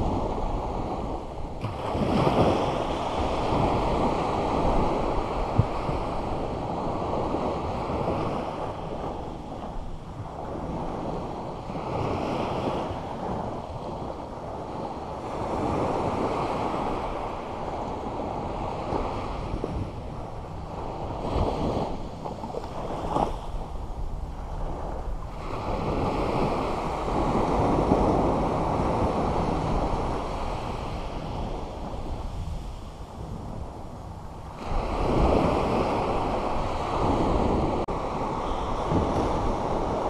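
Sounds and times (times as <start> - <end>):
surf washing up beach: 0.0 - 40.0.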